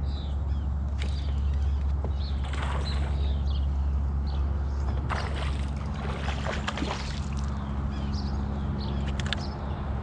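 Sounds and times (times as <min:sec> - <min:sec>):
steady low hum: 0:00.0 - 0:10.0
fish splashing in water: 0:05.1 - 0:07.6.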